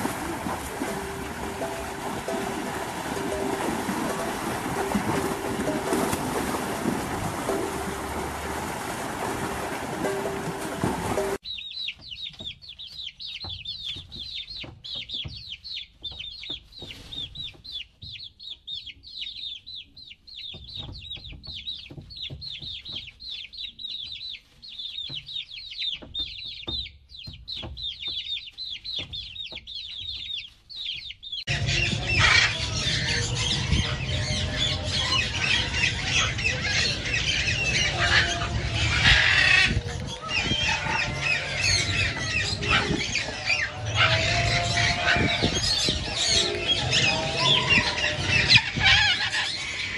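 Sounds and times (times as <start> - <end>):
chicks peeping: 11.4 - 49.9
hen clucking: 22.5 - 49.9
parrots squawking: 31.5 - 49.9.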